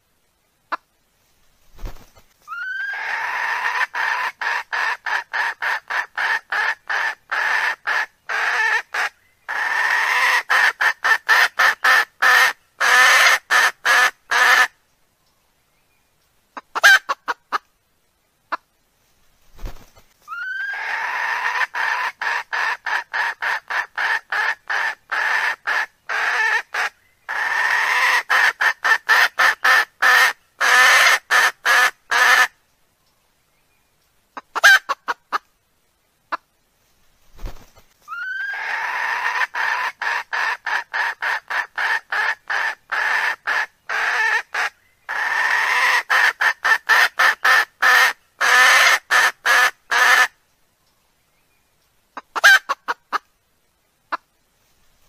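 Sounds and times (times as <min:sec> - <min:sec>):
wild chicken clucking calls: 0:00.6 - 0:15.4, 0:16.1 - 0:33.2, 0:33.9 - 0:51.0, 0:51.7 - 0:53.4, 0:54.0 - 0:54.4
rising squawk: 0:02.5 - 0:03.8, 0:20.3 - 0:22.0, 0:38.1 - 0:39.9.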